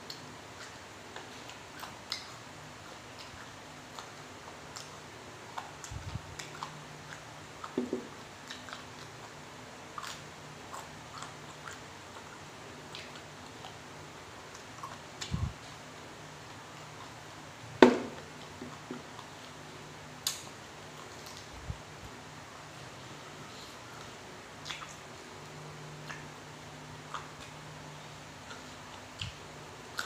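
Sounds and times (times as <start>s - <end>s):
person chewing food: 0.1s - 17.4s, 22.7s - 30.0s.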